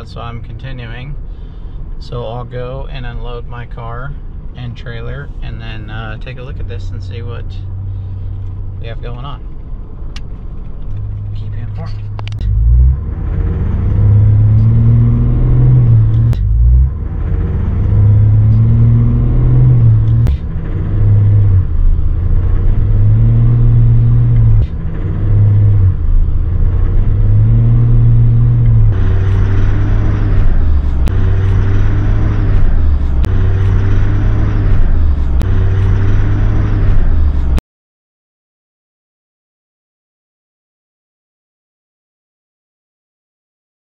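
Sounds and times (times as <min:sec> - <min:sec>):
diesel truck engine pulling away: 0:11.0 - 0:37.6.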